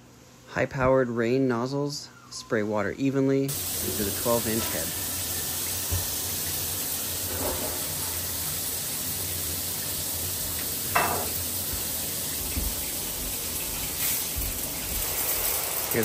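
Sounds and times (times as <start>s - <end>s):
shower water hissing: 3.5s - 16.0s.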